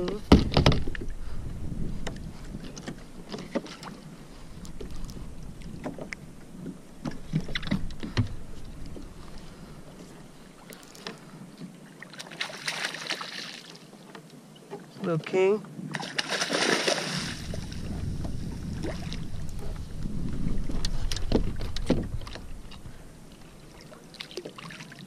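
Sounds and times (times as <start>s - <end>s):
wind on microphone: 0.0s - 10.6s, 15.7s - 24.0s
water lapping against kayak hull: 0.0s - 15.1s, 15.7s - 25.0s
fish splashing at surface: 16.0s - 17.6s.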